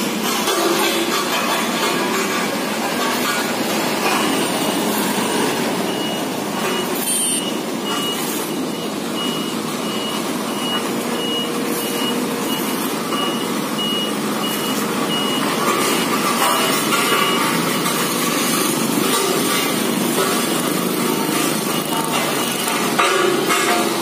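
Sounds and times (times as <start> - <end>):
road roller engine running: 0.0 - 24.0
reversing alarm beeping: 4.0 - 18.8, 21.1 - 23.4.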